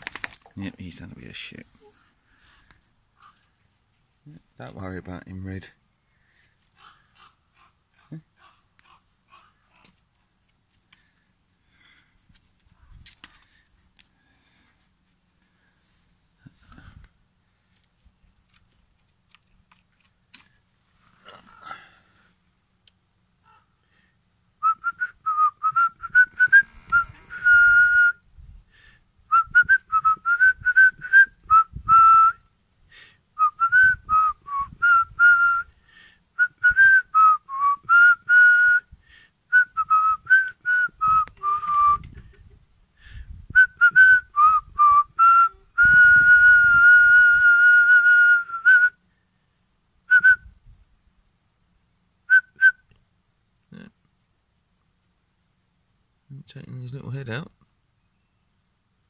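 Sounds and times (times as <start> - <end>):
person whistling: 39.6 - 42.0, 43.6 - 49.0.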